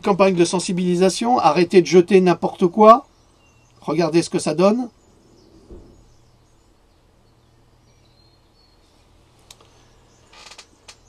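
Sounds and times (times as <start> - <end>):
steady low hum: 0.0 - 11.0
soft bump: 5.5 - 6.2.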